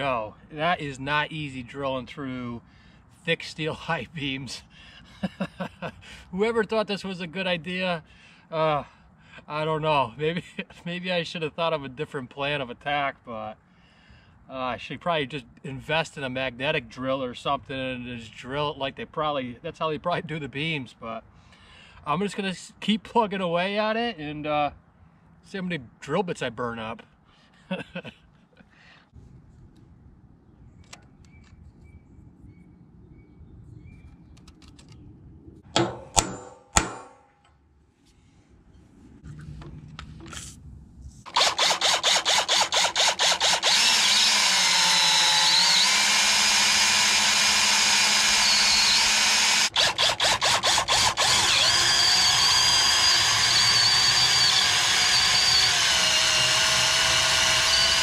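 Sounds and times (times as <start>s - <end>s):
sharp knocks: 35.7s - 37.5s
electric drill boring through steel: 41.3s - 58.0s.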